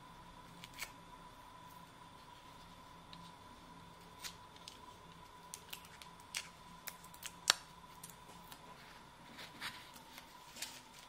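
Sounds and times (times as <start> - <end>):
paper wrapper crackling: 9.5 - 11.0.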